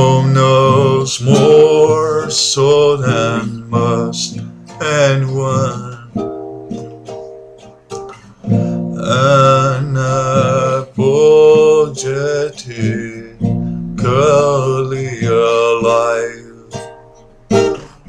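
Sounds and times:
man singing held notes: 0:00.0 - 0:06.1, 0:09.0 - 0:16.8
nylon-string guitar: 0:00.0 - 0:18.0.

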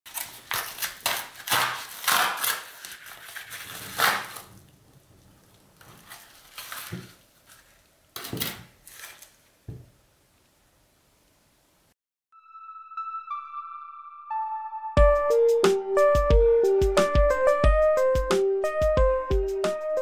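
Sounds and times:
paper envelope ripping: 0:00.1 - 0:09.6
paper rustling: 0:00.1 - 0:09.6.

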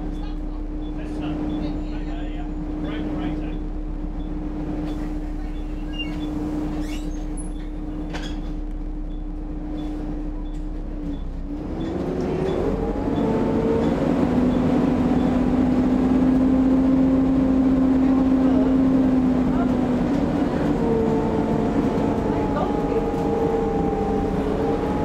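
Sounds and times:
bus engine whine: 0:00.0 - 0:25.0.

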